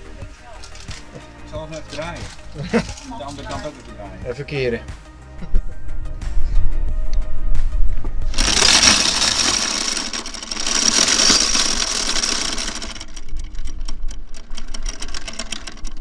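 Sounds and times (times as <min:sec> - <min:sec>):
anchor chain rattling: 0:00.5 - 0:04.0, 0:08.3 - 0:16.0
windlass high whine: 0:05.4 - 0:16.0.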